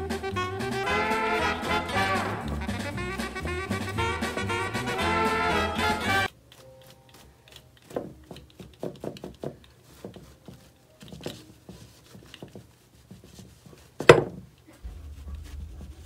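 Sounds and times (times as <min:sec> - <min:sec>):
duster tapping and rustling: 0:06.5 - 0:16.0
duster knocking on stone: 0:14.0 - 0:14.4
low hum: 0:14.8 - 0:16.0.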